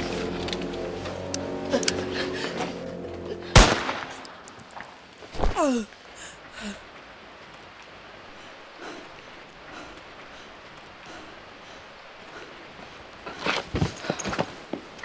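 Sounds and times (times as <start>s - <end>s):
film music: 0.0s - 5.2s
pistol shot: 3.6s - 4.3s
person crying out: 5.4s - 6.8s.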